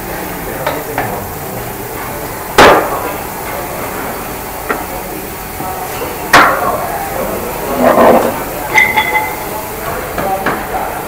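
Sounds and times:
workshop background noise: 0.0 - 11.0
loud sharp knock: 2.6 - 3.1.

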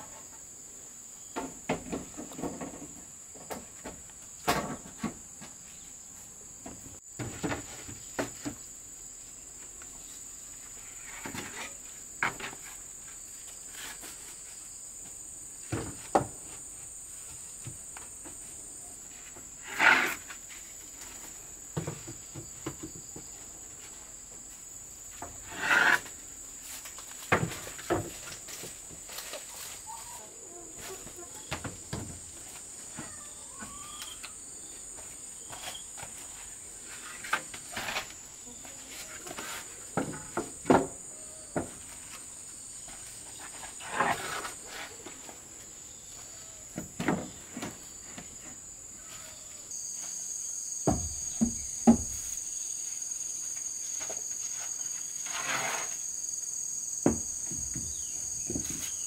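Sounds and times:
insects droning: 0.0 - 59.0
wooden planks knocking and scraping: 1.4 - 5.6, 6.6 - 8.6, 15.6 - 16.6, 26.6 - 30.0, 38.9 - 41.0, 46.7 - 48.6, 50.8 - 52.3.

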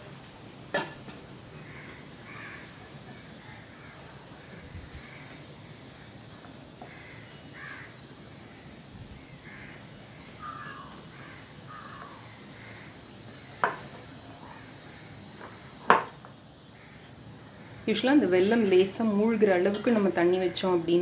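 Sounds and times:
faint bird calls: 1.5 - 15.9.

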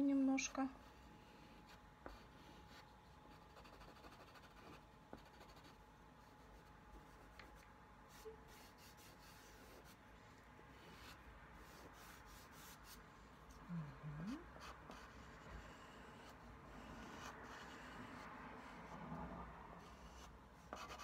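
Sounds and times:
pastel scratching on paper: 0.9 - 10.0, 10.8 - 13.0, 19.8 - 21.0.

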